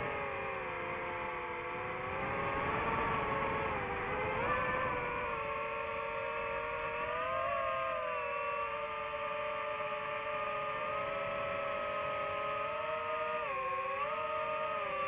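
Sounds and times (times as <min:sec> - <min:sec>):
drone propellers whining: 0:00.0 - 0:15.0.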